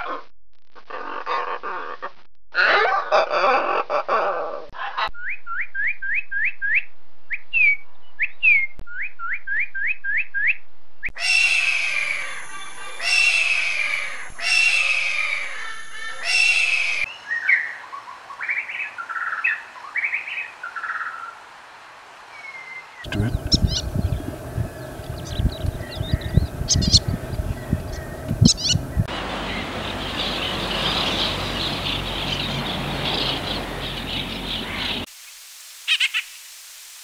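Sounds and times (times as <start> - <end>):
macaws squawking: 11.2 - 17.1, 23.1 - 35.1
long falling bird calls: 11.2 - 36.5.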